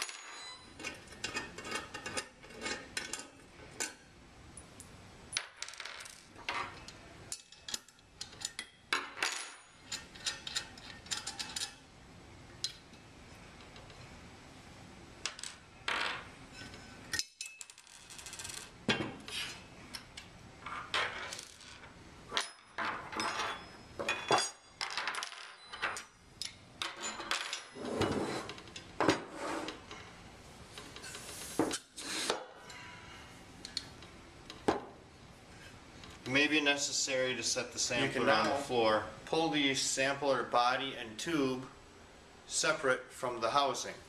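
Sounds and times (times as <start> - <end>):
metal parts clinking and scraping: 0.0 - 4.0, 5.7 - 11.8, 15.3 - 28.9.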